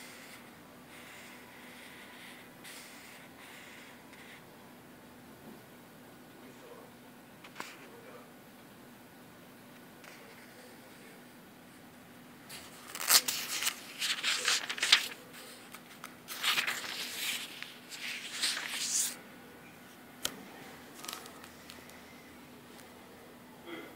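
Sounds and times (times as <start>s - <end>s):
book pages rustling: 12.5s - 19.2s, 20.2s - 22.0s.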